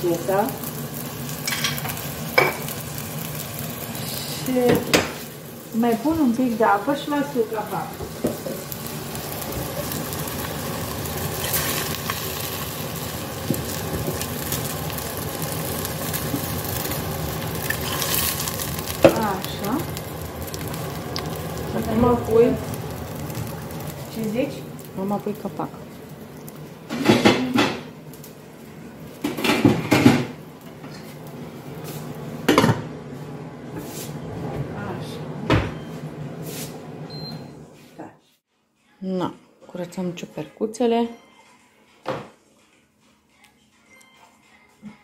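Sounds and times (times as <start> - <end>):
food sizzling in a pot: 0.0 - 34.2.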